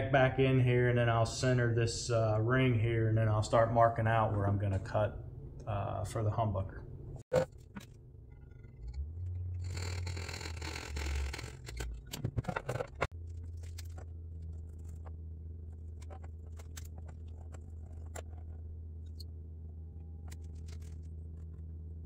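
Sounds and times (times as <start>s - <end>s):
sharp clicks and knocks: 8.6s - 19.3s.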